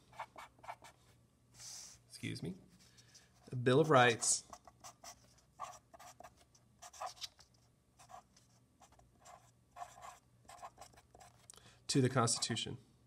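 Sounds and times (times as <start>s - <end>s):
marker pen writing on paper: 0.0s - 1.0s, 3.8s - 7.2s, 8.0s - 11.5s.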